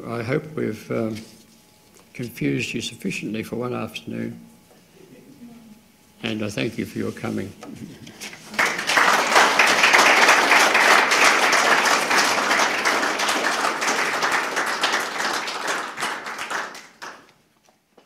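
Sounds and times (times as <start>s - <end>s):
audience applauding: 8.2s - 17.4s.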